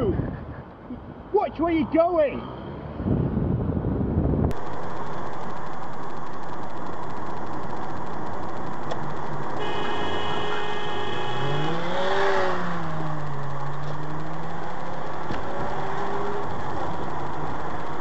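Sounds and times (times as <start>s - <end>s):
car road and engine noise: 0.0s - 18.0s
engine revving: 4.5s - 18.0s
car horn: 9.6s - 12.8s.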